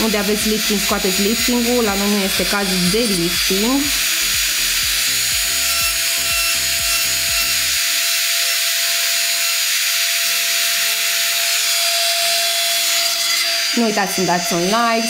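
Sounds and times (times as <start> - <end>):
background music: 0.0 - 7.8
electric nail drill filing: 0.0 - 15.0.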